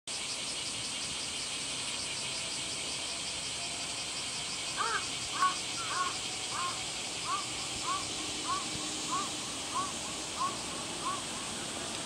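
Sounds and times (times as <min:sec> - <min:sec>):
insect chorus: 0:00.1 - 0:12.0
crow cawing: 0:04.8 - 0:11.2.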